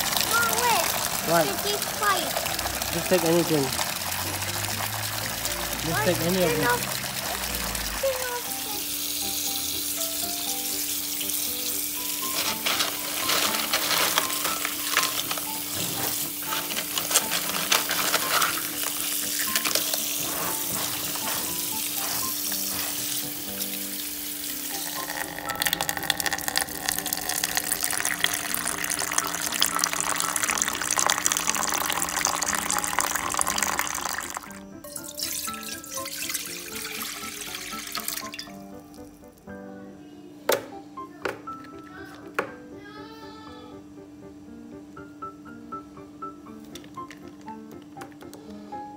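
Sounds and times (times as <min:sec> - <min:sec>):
tap water pouring over shells: 0:00.0 - 0:39.1
soft background music: 0:00.0 - 0:48.9.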